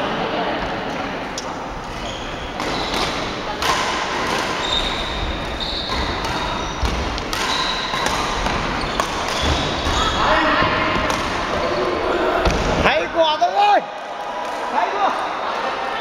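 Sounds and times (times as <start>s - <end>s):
sneakers squeaking on court floor: 1.7s - 12.8s
racket striking shuttlecock: 2.5s - 4.6s, 5.4s - 10.0s.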